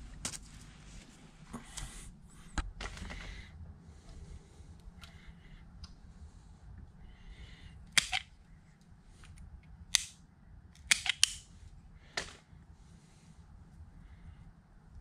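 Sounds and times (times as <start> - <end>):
wire stripper clicking: 10.8 - 11.4.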